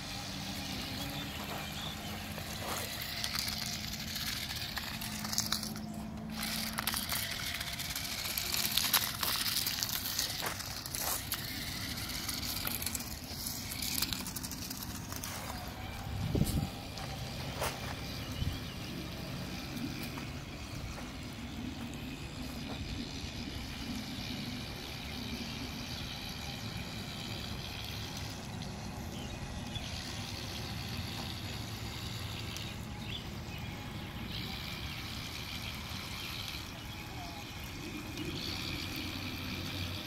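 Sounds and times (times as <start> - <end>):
wheels splashing through water: 0.0 - 16.0
toy car electric motors: 0.0 - 40.0.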